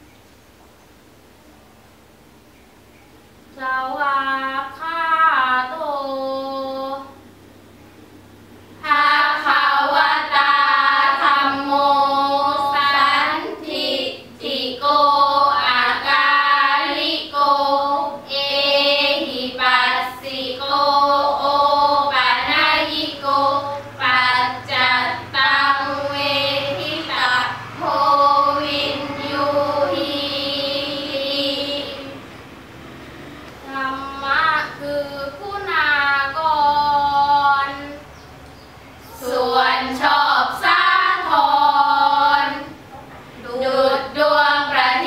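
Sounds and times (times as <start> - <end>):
girls chanting together: 8.8 - 32.4, 33.6 - 38.1, 39.0 - 45.0.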